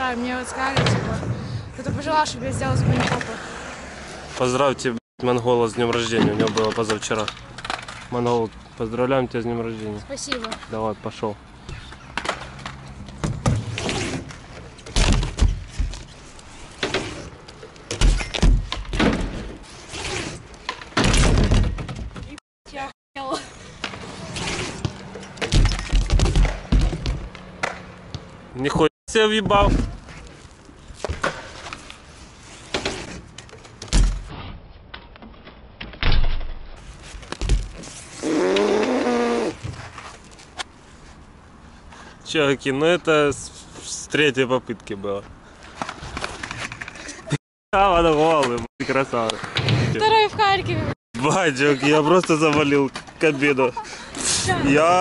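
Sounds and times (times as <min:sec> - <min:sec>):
bike wheels thudding on concrete: 0:11.6 - 0:22.4, 0:23.8 - 0:28.3, 0:36.1 - 0:40.2
tyre scrapes and knocks: 0:13.2 - 0:22.4
bike landing thuds with clatter: 0:17.9 - 0:19.6, 0:24.8 - 0:27.8, 0:33.8 - 0:34.3, 0:35.9 - 0:37.9.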